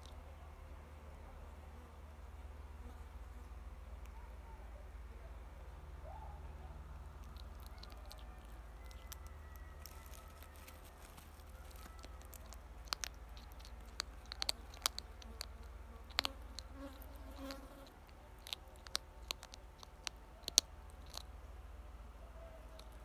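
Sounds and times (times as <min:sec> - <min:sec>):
hedgehog crunching kibble: 0:07.0 - 0:21.4, 0:22.6 - 0:23.0.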